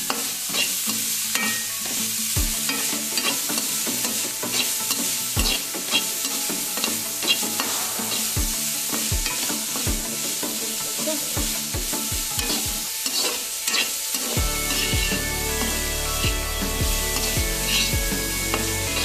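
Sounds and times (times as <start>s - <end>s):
metal spatula scraping a wok: 0.0s - 11.4s, 12.4s - 19.0s
music: 0.0s - 19.0s
vegetables sizzling in hot oil: 0.0s - 19.0s.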